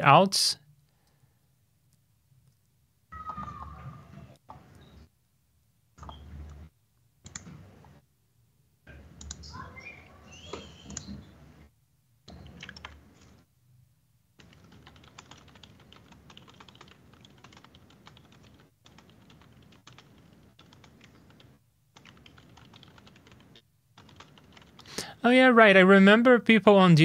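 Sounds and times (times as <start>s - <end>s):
typing on a keyboard: 7.2s - 7.5s, 12.3s - 13.4s, 14.4s - 24.9s.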